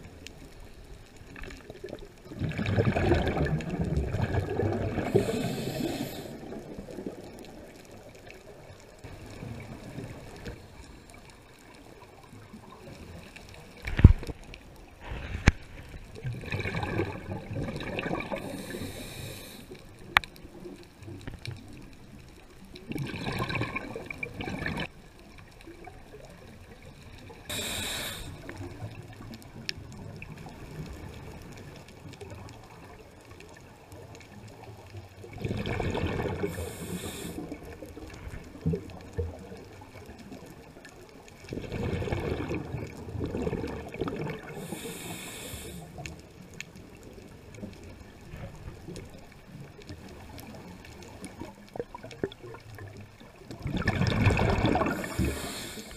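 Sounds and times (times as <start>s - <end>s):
faint water noise: 0.0s - 55.9s
exhaled bubbles rushing: 1.4s - 10.7s, 15.0s - 19.0s, 22.7s - 24.9s, 35.2s - 44.9s, 47.7s - 55.9s
regulator inhalation hiss: 5.0s - 6.4s, 18.4s - 19.8s, 27.5s - 28.5s, 36.5s - 37.6s, 44.6s - 45.9s, 54.9s - 55.9s.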